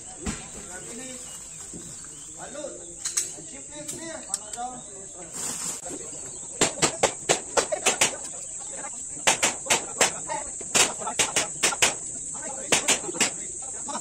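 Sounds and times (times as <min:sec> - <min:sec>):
rapid pistol fire: 0:09.2 - 0:12.0, 0:12.6 - 0:13.4.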